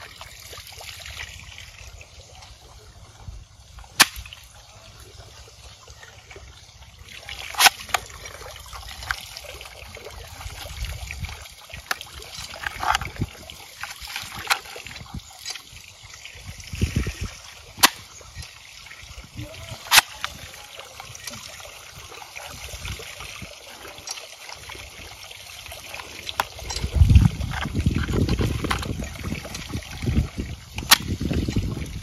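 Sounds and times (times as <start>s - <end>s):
faint trickling water: 0.0s - 32.0s
plastic toy gun clicks: 7.6s - 8.1s, 19.9s - 20.4s.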